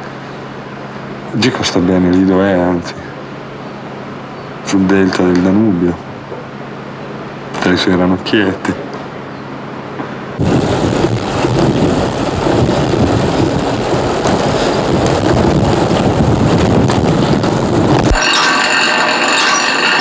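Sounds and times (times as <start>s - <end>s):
wind on the microphone: 10.4s - 18.2s.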